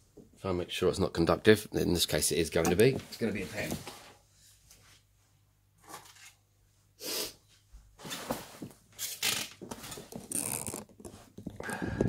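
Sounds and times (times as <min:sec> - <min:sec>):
rustles scrapes and light knocks: 0:02.8 - 0:05.1, 0:08.0 - 0:10.3.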